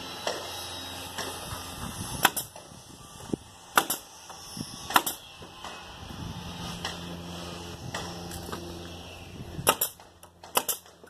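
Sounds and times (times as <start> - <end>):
nail gun firing: 2.2 - 2.7, 3.7 - 4.1, 4.9 - 5.8, 9.6 - 11.0.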